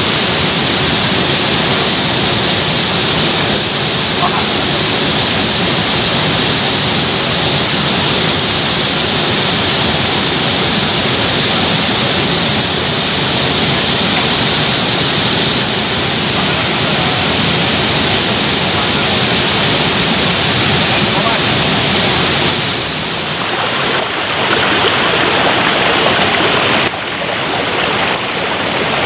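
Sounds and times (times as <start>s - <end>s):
waterfall rushing: 11.7s - 29.0s.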